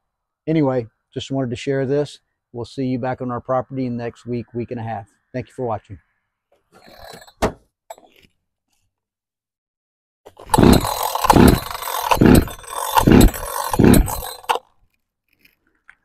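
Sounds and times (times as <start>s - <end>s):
chainsaw recoil starter pulls: 10.3s - 14.7s.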